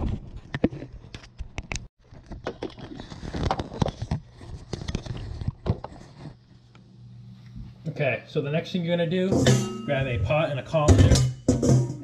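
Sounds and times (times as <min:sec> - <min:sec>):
camera being handled: 0:00.6 - 0:06.3
kitchen items clicking and knocking: 0:09.3 - 0:12.0.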